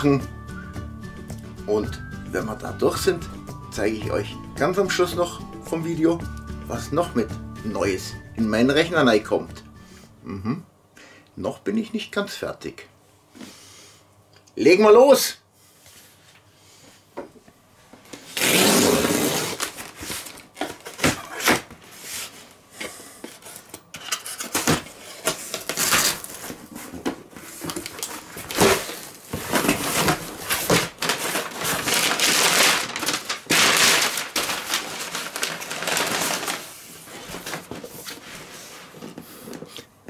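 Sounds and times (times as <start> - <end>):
packing paper rustling: 18.3 - 22.4, 23.2 - 39.6
cardboard flaps torn open: 24.5 - 26.6, 27.7 - 36.6.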